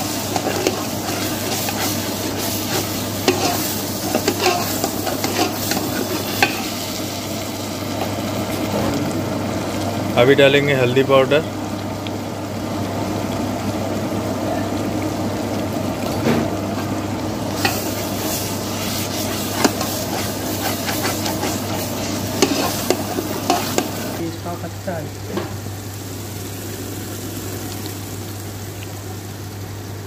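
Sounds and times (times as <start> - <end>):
ladle scraping metal pot: 0.0 - 6.7, 17.6 - 24.1
food sizzling in oil: 0.0 - 30.0.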